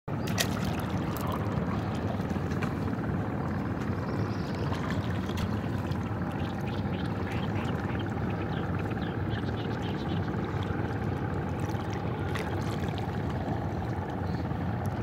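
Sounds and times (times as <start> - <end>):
low rumble: 0.1 - 15.0
oar splashing in water: 0.2 - 2.8.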